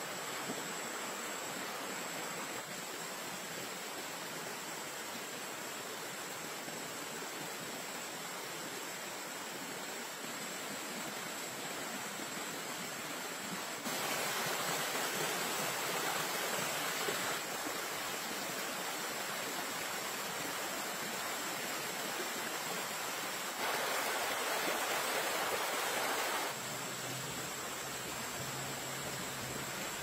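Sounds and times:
stream water rushing: 0.0 - 30.0.

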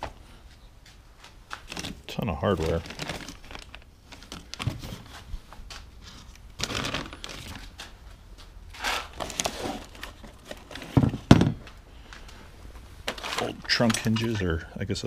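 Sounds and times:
cardboard rustling and scraping: 1.6 - 7.8, 8.7 - 11.5, 13.0 - 14.4.

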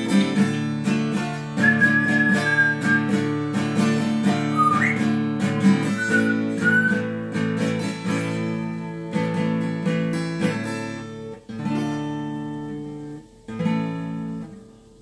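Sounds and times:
acoustic guitar strumming: 0.0 - 15.0
whistled notes: 1.6 - 3.4, 4.3 - 7.2.

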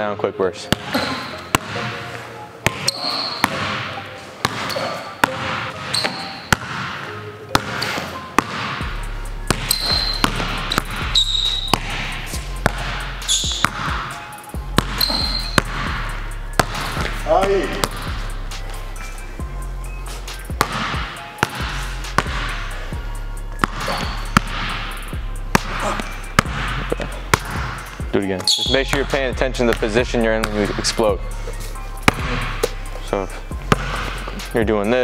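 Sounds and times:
sneaker squeaks on floor: 0.7 - 8.8, 9.5 - 16.0, 23.6 - 24.7, 27.4 - 29.0
basketball bouncing on hardwood floor: 8.4 - 8.8, 9.5 - 11.0, 12.6 - 14.1, 16.6 - 17.1, 20.6 - 22.5, 23.6 - 24.8, 25.6 - 27.8, 32.0 - 32.6, 33.6 - 34.2.

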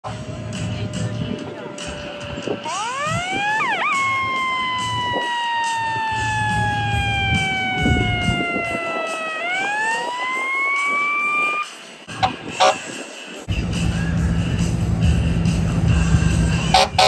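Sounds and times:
mechanical siren wailing: 0.1 - 12.9, 16.7 - 17.0.

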